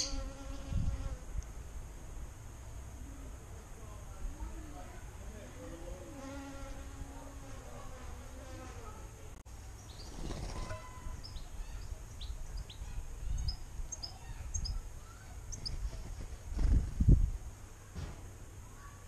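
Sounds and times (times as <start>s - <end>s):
small birds chirping: 0.0s - 0.4s, 9.5s - 17.2s.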